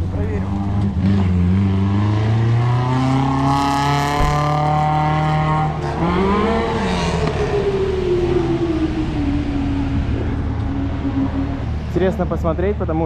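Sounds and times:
car engine accelerating: 0:00.0 - 0:13.0.

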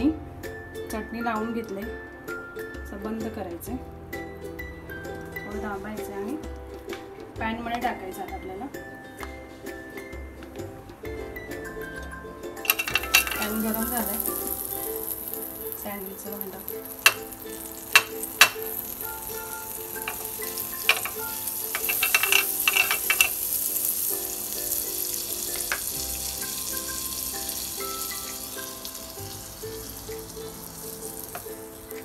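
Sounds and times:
metal spoon clicking on pan: 0:12.6 - 0:15.2, 0:16.6 - 0:23.5, 0:25.5 - 0:26.0
butter sizzling: 0:12.6 - 0:32.0.

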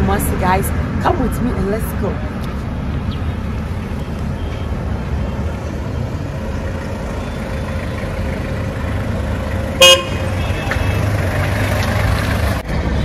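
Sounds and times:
vehicle engines running: 0:00.0 - 0:13.0
pickup truck approaching: 0:02.2 - 0:13.0
car horn beep: 0:09.7 - 0:11.2.

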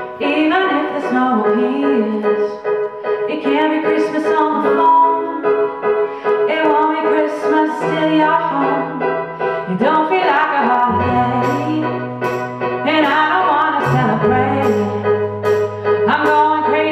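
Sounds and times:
piano: 0:00.0 - 0:16.9
woman singing into microphone: 0:00.1 - 0:02.7, 0:03.3 - 0:05.5, 0:06.4 - 0:16.9
backing band: 0:10.9 - 0:16.6.

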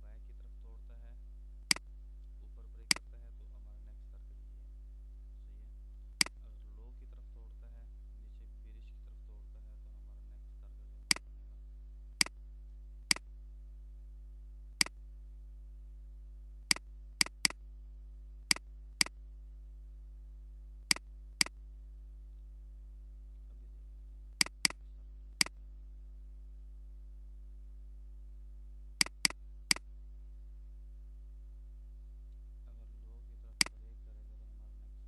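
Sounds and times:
low electrical hum: 0:00.0 - 0:35.0
computer mouse clicks: 0:16.7 - 0:17.6, 0:24.4 - 0:24.8, 0:29.0 - 0:29.8.

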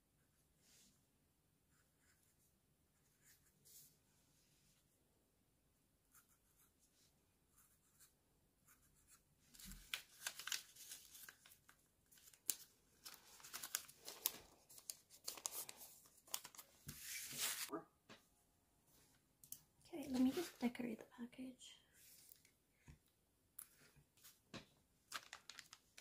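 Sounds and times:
paper rustling and tearing: 0:09.6 - 0:17.7, 0:25.1 - 0:26.0.

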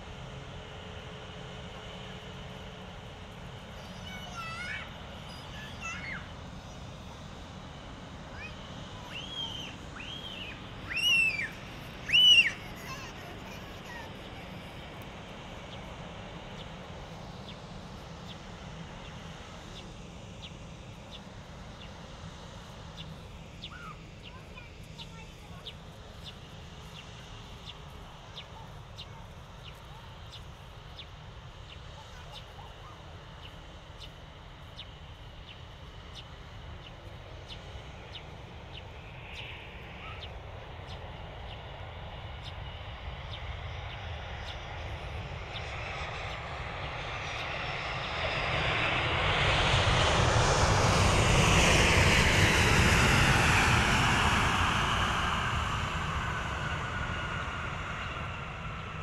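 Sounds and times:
jet airliner passing: 0:00.0 - 0:59.0.

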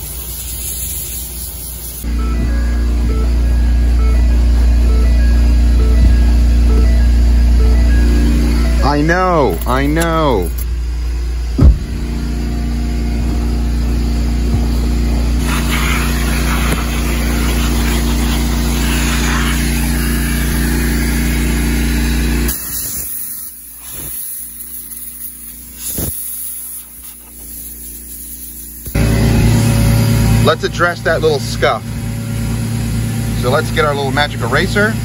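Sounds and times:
sharp knocks: 0:11.6 - 0:12.0
vacuum cleaner motor humming: 0:11.6 - 0:24.3, 0:28.8 - 0:30.5.

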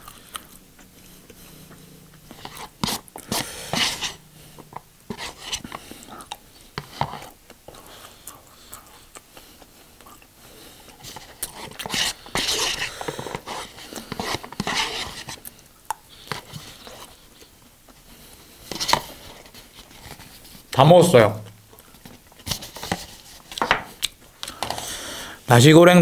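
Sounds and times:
person chewing: 0:00.0 - 0:18.2, 0:23.4 - 0:24.6.

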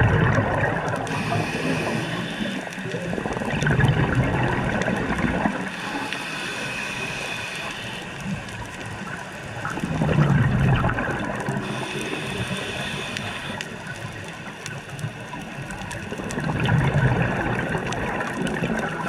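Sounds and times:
underwater exhaled bubbles: 0:00.0 - 0:19.0
steady hiss: 0:01.0 - 0:03.3, 0:05.5 - 0:09.7, 0:11.6 - 0:15.8.

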